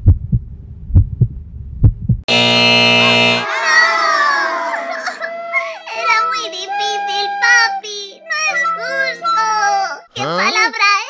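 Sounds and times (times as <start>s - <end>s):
falling-pitch fail sound effect: 2.3s - 7.4s
cartoon voice crying: 3.5s - 10.7s.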